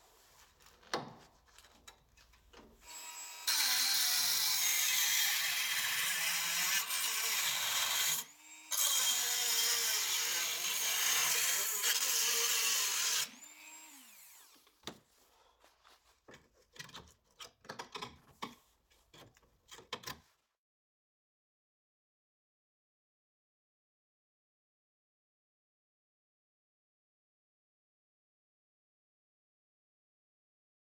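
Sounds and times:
rotary multitool cutting metal: 2.8s - 14.7s.

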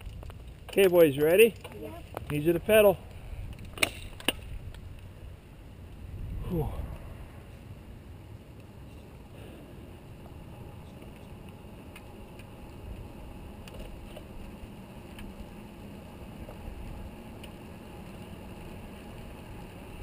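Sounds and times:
tyres rolling on asphalt: 0.0s - 6.4s, 7.0s - 20.0s
wind on microphone: 6.0s - 7.5s.

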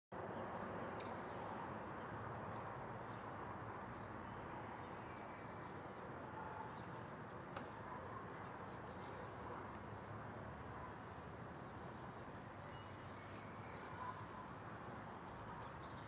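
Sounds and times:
small click: 1.0s - 1.2s, 7.5s - 7.8s.

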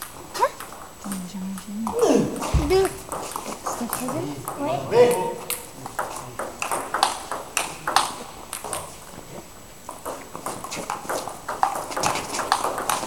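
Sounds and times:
table tennis ball clicking: 5.5s - 9.0s, 9.9s - 13.0s.

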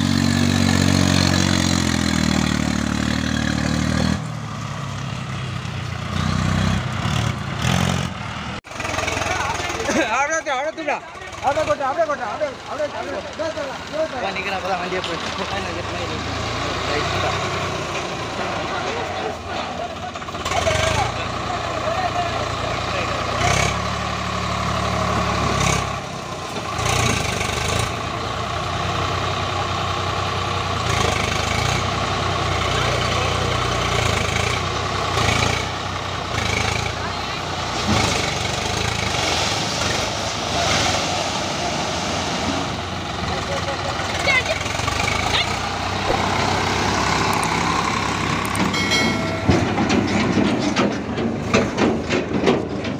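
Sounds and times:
diesel tractor engine idling: 7.4s - 39.0s, 42.6s - 52.9s
trolley clanking and rattling: 43.8s - 52.9s.

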